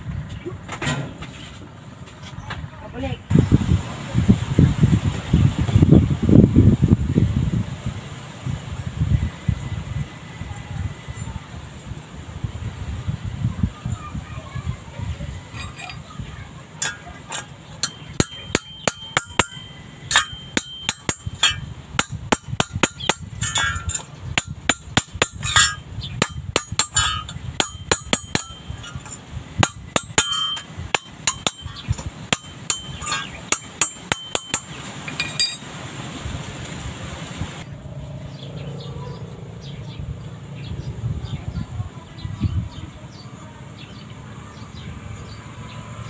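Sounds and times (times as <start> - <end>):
hammer tapping on metal: 16.8 - 35.7.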